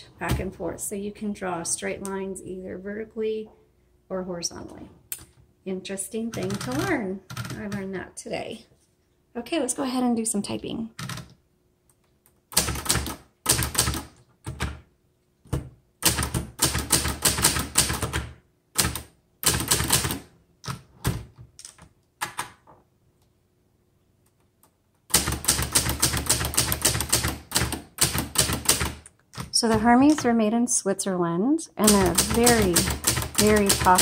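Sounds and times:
typewriter keys striking: 16.0 - 20.8, 25.1 - 29.0, 31.8 - 34.0.

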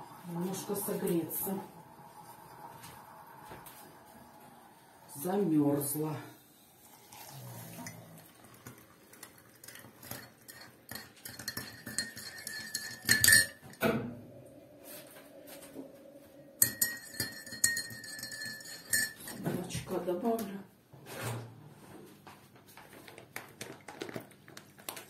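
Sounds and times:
teaspoon clinking in a cup: 8.6 - 13.8, 16.6 - 19.4.

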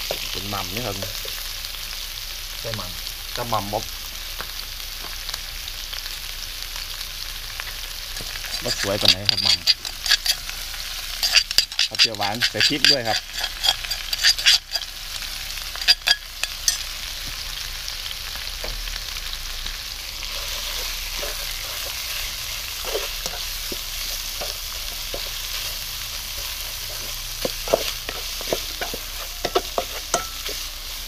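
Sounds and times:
food sizzling in hot oil: 0.0 - 31.0
spatula scraping wok: 7.6 - 17.5, 19.0 - 31.0.

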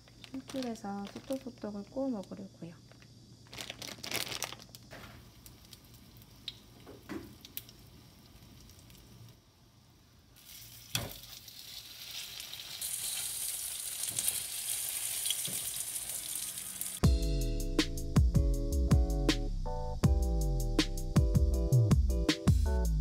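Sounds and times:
food sizzling in a pan: 4.9 - 17.0.

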